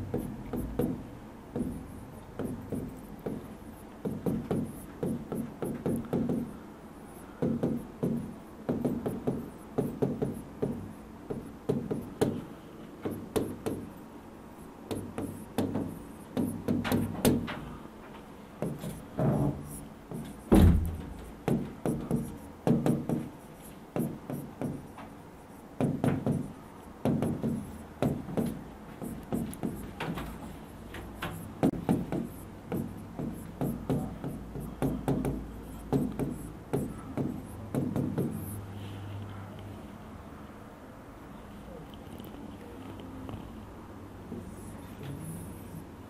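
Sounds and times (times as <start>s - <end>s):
faint steady hum: 0.0s - 46.0s
loud knock: 19.2s - 23.3s.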